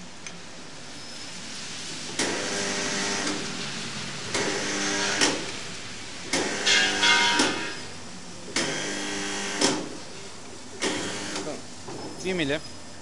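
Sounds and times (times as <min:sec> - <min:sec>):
spot welder buzzing: 0:02.1 - 0:10.0, 0:10.8 - 0:11.6.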